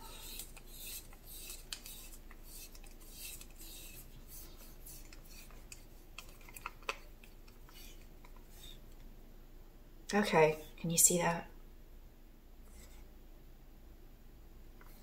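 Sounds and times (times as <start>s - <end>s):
stick scraping in plastic cup: 0.0s - 8.8s.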